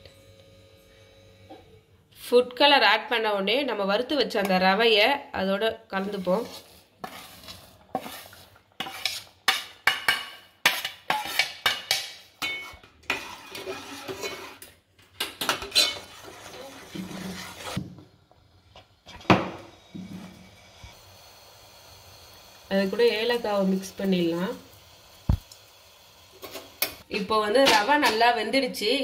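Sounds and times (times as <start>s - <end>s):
spoon clinking and scraping a pot: 6.0s - 17.8s.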